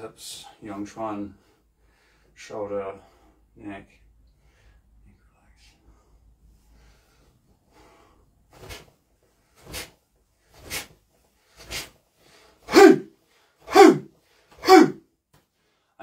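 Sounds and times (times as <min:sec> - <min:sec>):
man's forceful exhalations: 0:12.6 - 0:15.0
man shouting: 0:12.7 - 0:13.1, 0:13.7 - 0:14.0, 0:14.6 - 0:15.0.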